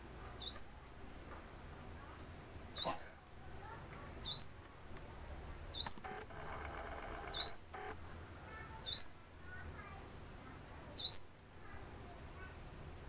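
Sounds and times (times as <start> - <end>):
bird calling: 5.5 - 8.0.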